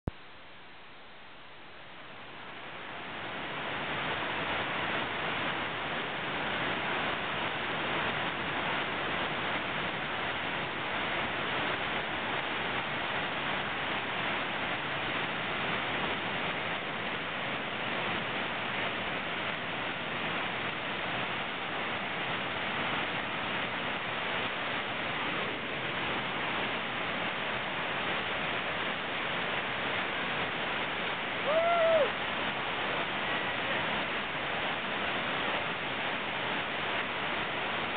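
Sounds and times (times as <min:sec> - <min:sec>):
whitewater crashing over rocks: 0:02.2 - 0:37.9.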